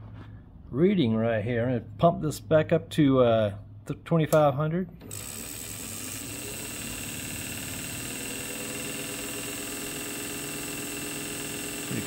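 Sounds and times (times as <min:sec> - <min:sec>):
test machine spinning with high whine: 0:05.0 - 0:12.0.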